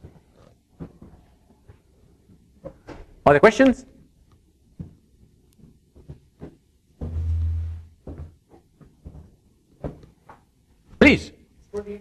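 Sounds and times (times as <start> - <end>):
muffled low rumble: 7.1 - 8.0.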